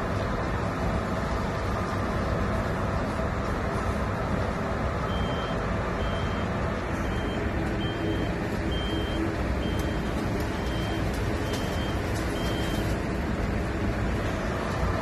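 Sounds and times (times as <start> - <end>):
lorry diesel engine running: 0.0 - 15.0
reversing alarm beeps: 5.1 - 13.0.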